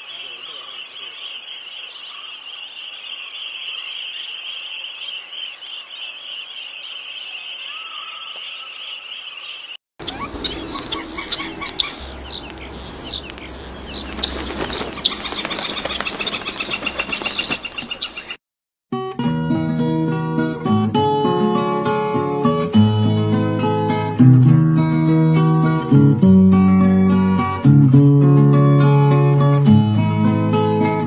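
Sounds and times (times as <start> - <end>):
bird chirping: 0.0 - 18.4
insects buzzing: 0.0 - 18.4.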